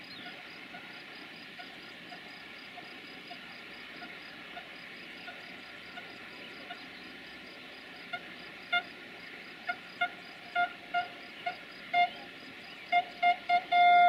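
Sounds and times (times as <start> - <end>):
insects chirping: 0.0 - 14.0
train horn toots: 9.7 - 12.2, 12.9 - 14.0.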